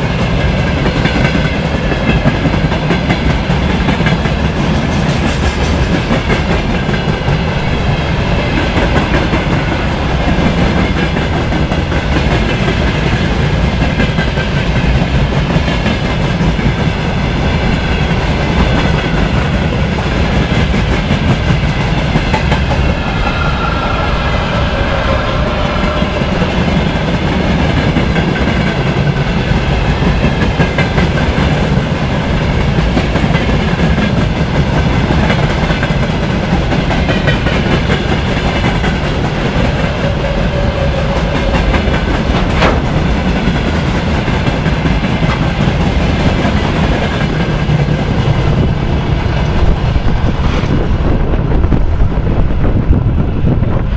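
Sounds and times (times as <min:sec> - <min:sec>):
train wheels clacking on rails: 0:00.0 - 0:52.1.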